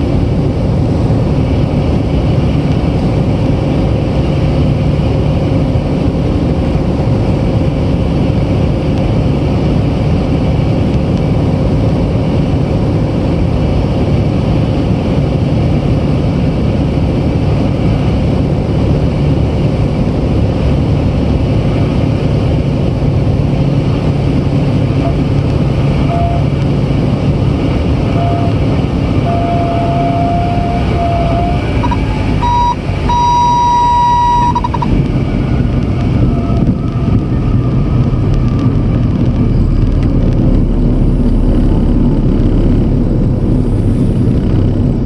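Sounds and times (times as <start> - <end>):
aircraft engine and propeller: 0.0 - 45.0
wind rushing: 0.0 - 45.0
stall warning horn: 26.0 - 26.6, 28.0 - 35.0.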